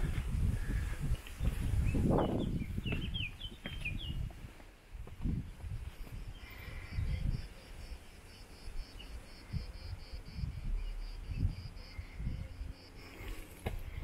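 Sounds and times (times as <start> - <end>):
footsteps on stone: 0.0 - 6.3
insect chirping: 5.4 - 14.0.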